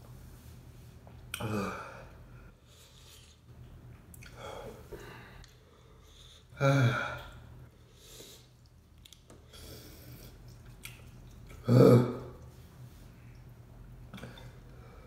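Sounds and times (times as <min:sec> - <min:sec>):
man groaning: 0:01.4 - 0:02.0, 0:06.6 - 0:07.3
man chewing noodles: 0:08.1 - 0:12.6.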